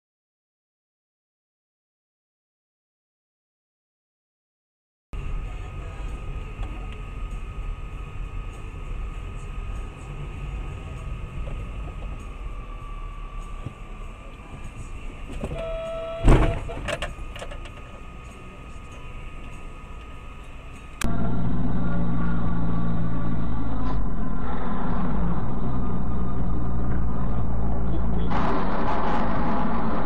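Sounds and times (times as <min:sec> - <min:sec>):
vehicle road and engine rumble: 0:05.2 - 0:30.0
car horn blaring: 0:15.5 - 0:16.7.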